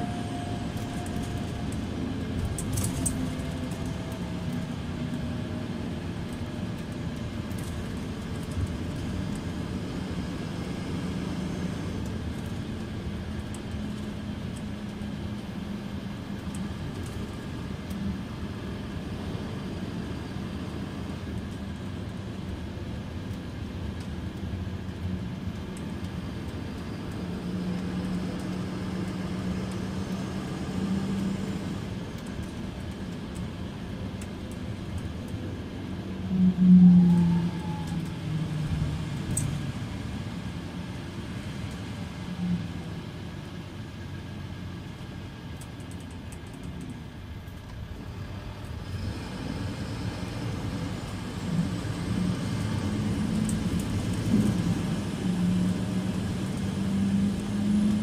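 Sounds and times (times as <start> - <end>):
bus diesel engine idling: 0.0 - 11.0.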